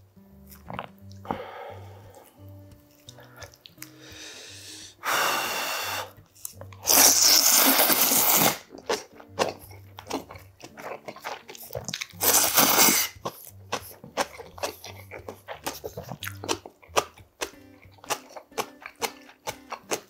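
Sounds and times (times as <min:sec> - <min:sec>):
wet chewing: 0:00.3 - 0:05.0, 0:06.1 - 0:20.0
mouth clicks: 0:00.4 - 0:20.0
man slurping noodles: 0:06.8 - 0:16.4.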